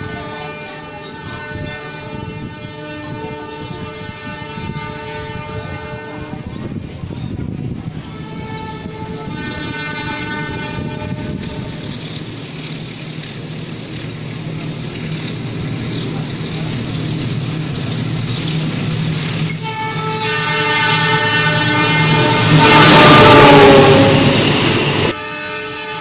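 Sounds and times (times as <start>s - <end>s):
locomotive air horn blasts: 0.0s - 6.4s, 8.3s - 12.0s, 19.5s - 26.0s
locomotive engine rumble: 0.0s - 25.2s.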